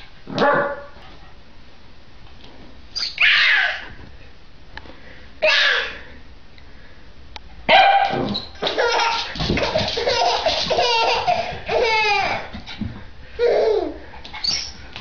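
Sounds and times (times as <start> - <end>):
baby laughing: 8.6 - 12.6, 13.4 - 14.0.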